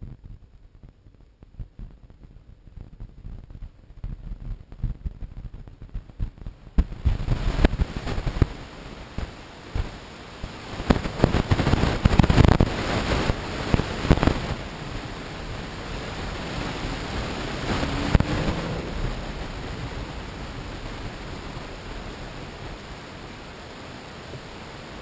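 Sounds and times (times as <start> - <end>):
car rumbling with crackling knocks: 0.0 - 8.6, 16.4 - 22.8
faint rising engine note: 16.7 - 22.4.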